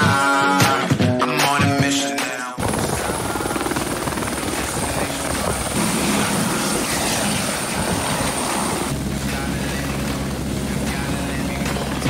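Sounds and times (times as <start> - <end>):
helicopter rotor beat: 2.6 - 12.0
helicopter turbine whine: 2.6 - 12.0.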